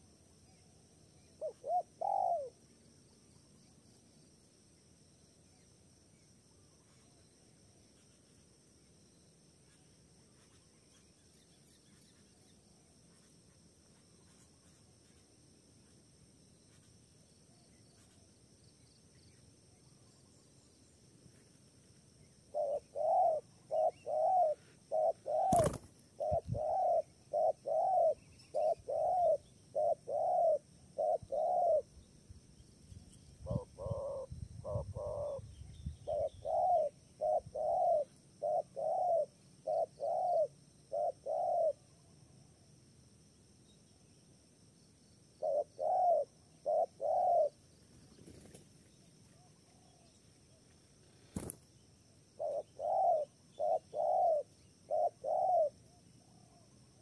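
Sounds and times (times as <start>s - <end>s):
dove cooing: 1.4s - 2.6s, 22.5s - 31.9s, 33.4s - 41.9s, 45.4s - 47.6s, 52.4s - 56.6s.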